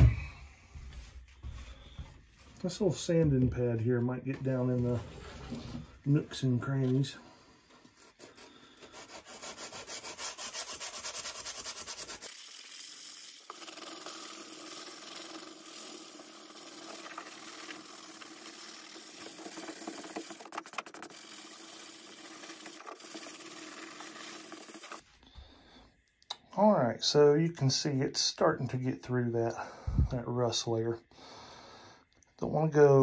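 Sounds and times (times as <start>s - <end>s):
sanding sponge scraping rusty metal: 8.0s - 25.0s.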